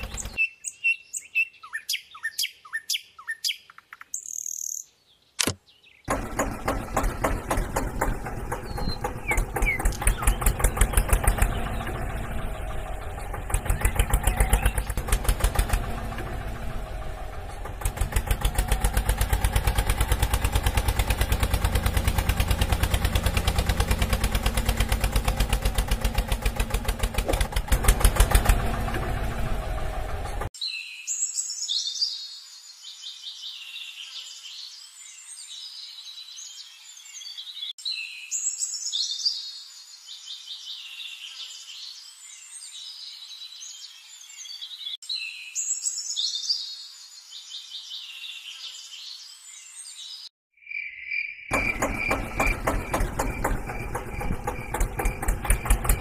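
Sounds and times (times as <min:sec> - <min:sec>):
tractor engine chugging: 0:00.0 - 0:00.4, 0:06.1 - 0:30.5, 0:51.5 - 0:56.0
birds chirping: 0:00.0 - 0:56.0.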